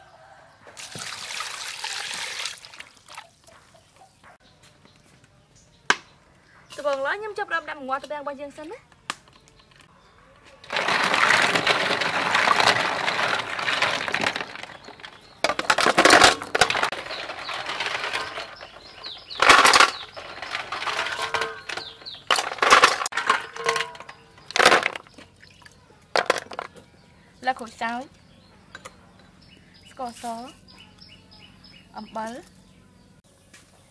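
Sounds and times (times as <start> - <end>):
snail shells clattering on metal: 10.6 - 25.3, 26.1 - 26.9.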